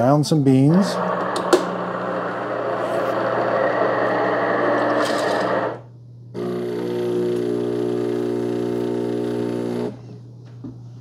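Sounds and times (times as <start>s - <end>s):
water pump humming: 0.7s - 10.0s
coffee grinder whirring: 0.8s - 5.8s, 6.4s - 10.0s.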